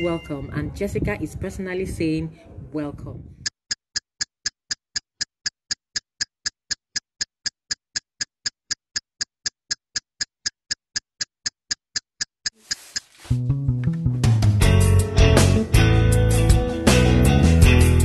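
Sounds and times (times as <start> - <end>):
electronic timer ticks: 3.4 - 13.3.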